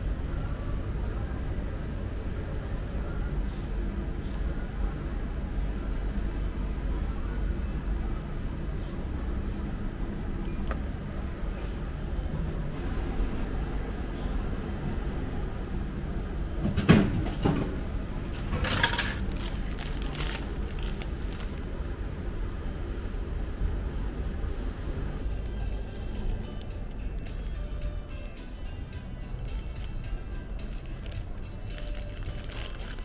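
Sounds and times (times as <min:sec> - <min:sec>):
vending machine hum: 0:00.0 - 0:33.0
item clattering into tray: 0:18.3 - 0:20.5
plastic bag crinkling: 0:18.3 - 0:21.7, 0:29.3 - 0:33.0.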